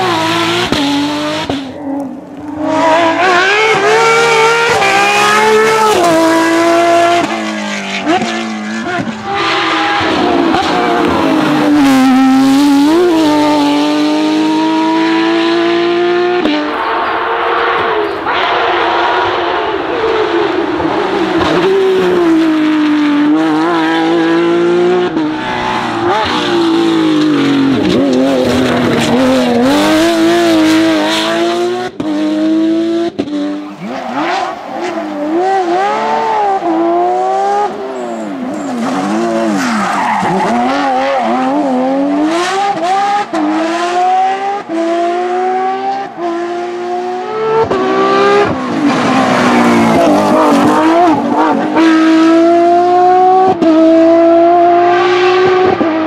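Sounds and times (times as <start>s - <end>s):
rally car engine revving: 0.0s - 56.0s.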